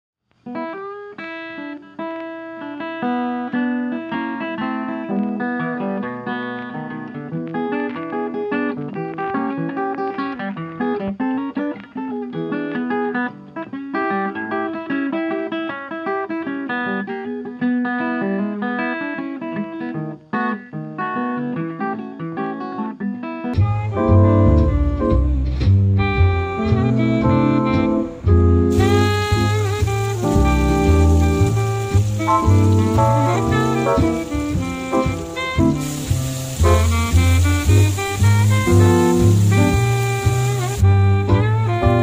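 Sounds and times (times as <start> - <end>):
plucked guitar melody: 0.5 - 42.0
bass line: 23.6 - 42.0.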